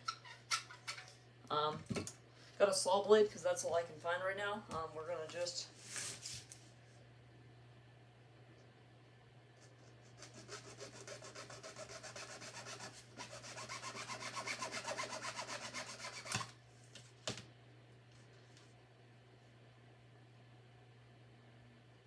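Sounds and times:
saw blade scraping through tube: 0:10.1 - 0:16.5.

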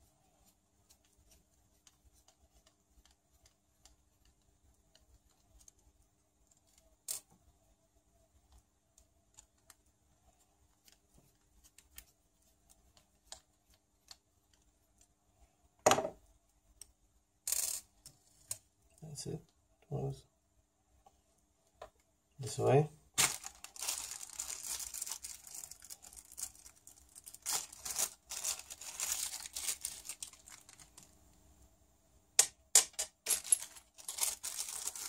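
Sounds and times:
parts scraping and rustling: 0:32.9 - 0:35.0.

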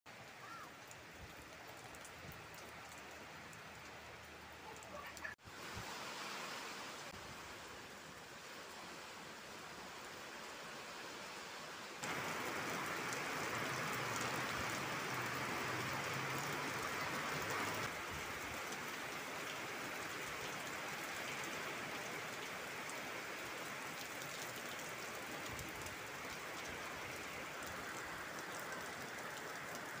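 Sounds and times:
heavy rain hissing: 0:04.4 - 0:23.9.

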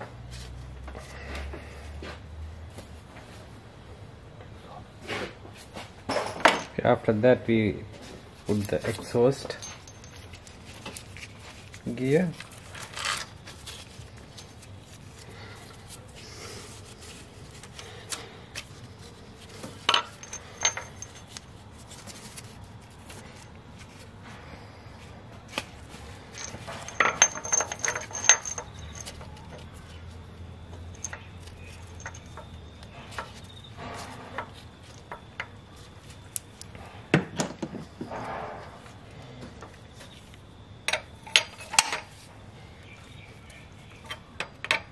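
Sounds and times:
timing chain rattling: 0:08.5 - 0:11.2, 0:19.9 - 0:21.4, 0:26.3 - 0:29.6, 0:30.9 - 0:32.6
metal clinks: 0:08.5 - 0:11.3, 0:19.8 - 0:21.4, 0:26.3 - 0:29.7, 0:30.7 - 0:35.5.

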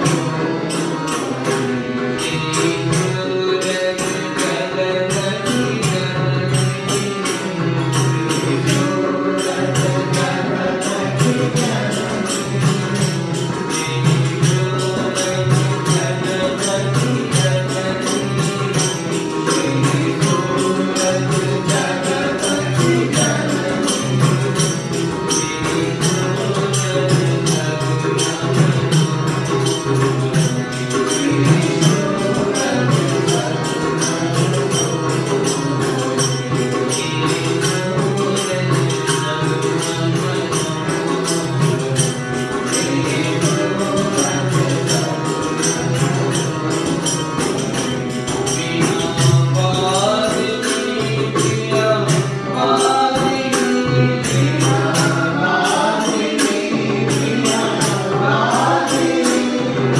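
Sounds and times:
fast percussion beat: 0:00.0 - 0:59.9
group singing devotional song: 0:52.5 - 0:59.9.

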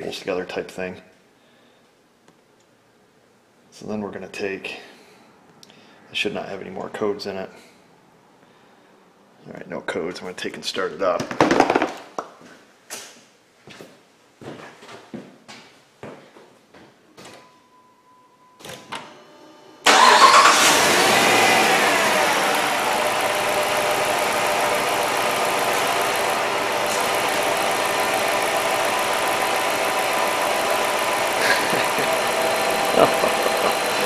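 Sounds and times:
car engine starting and idling: 0:19.8 - 0:34.0.

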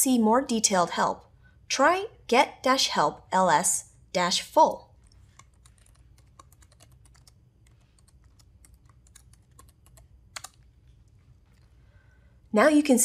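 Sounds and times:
keyboard typing: 0:05.0 - 0:11.7.

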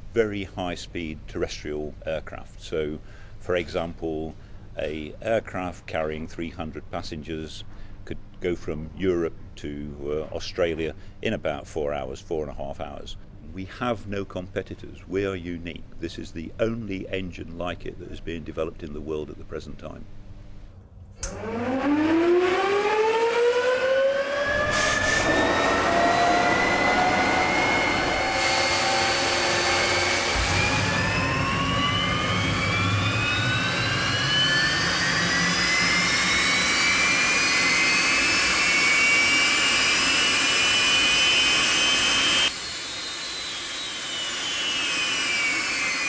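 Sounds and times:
jet engine whine climbing in pitch: 0:21.2 - 0:46.0.

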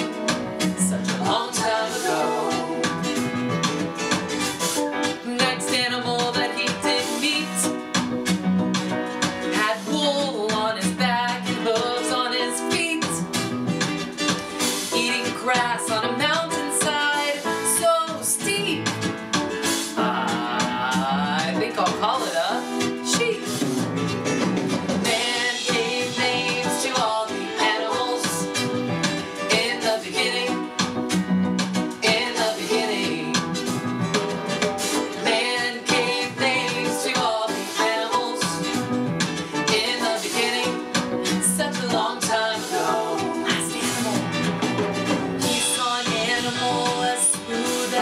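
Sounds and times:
person singing: 0:00.0 - 0:03.4, 0:05.2 - 0:07.8, 0:09.5 - 0:13.3, 0:19.6 - 0:23.7, 0:25.0 - 0:31.0, 0:31.9 - 0:44.5, 0:45.4 - 0:48.0
strummed acoustic guitar: 0:00.0 - 0:17.4, 0:18.8 - 0:48.0
man singing: 0:19.9 - 0:22.4.

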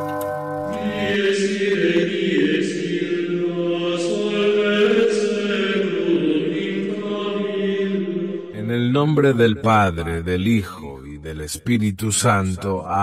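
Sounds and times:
bell-like tone: 0:00.0 - 0:02.0
slow choral chanting: 0:00.6 - 0:08.6.

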